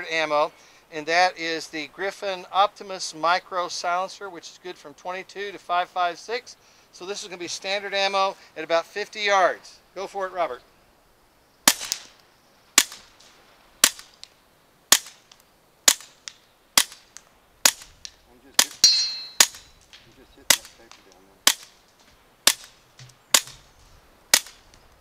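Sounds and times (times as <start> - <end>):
suppressed pistol cracks: 12.8 - 23.6, 24.3 - 24.8.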